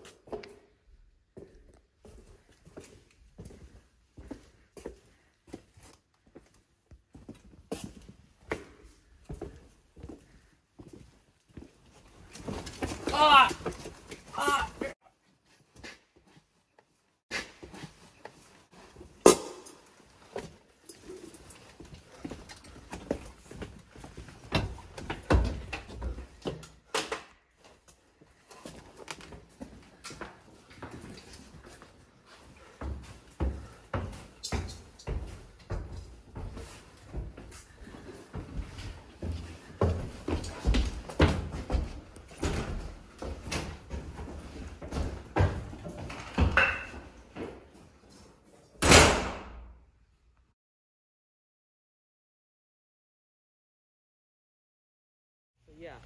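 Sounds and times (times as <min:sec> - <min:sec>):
footsteps: 0:00.0 - 0:26.8, 0:27.5 - 0:48.5.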